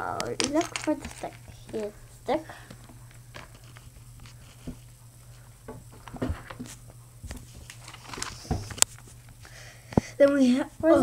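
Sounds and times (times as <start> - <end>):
plastic pieces clicking: 0.0 - 1.9
steady low hum: 0.0 - 11.0.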